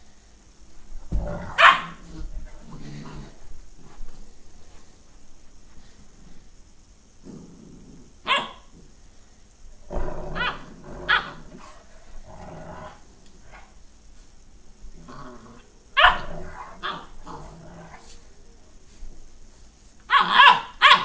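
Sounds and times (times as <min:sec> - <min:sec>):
dogs growling: 0:01.1 - 0:04.0, 0:07.2 - 0:09.0, 0:09.8 - 0:13.8, 0:14.9 - 0:18.8
dogs barking and yipping: 0:01.6 - 0:01.9, 0:16.0 - 0:17.1, 0:20.1 - 0:21.0.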